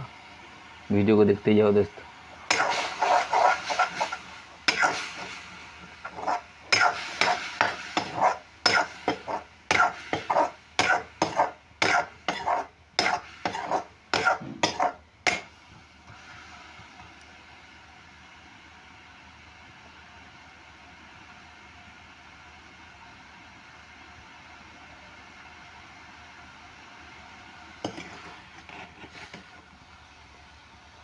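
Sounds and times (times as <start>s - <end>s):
spatula scraping a pan: 2.5s - 15.5s, 27.8s - 29.5s.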